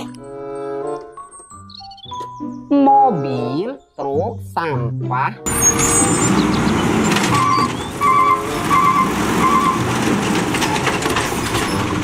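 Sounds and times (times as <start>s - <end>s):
garbage truck engine rumble: 5.4s - 12.0s
hydraulic arm lifting cart: 5.5s - 12.0s
trash cart clattering: 5.5s - 12.0s.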